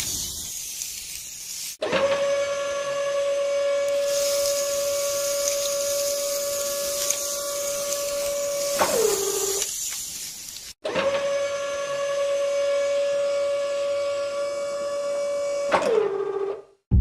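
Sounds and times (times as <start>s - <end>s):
small electric motor whining: 2.2s - 9.7s
sand and stones sliding: 4.0s - 10.7s.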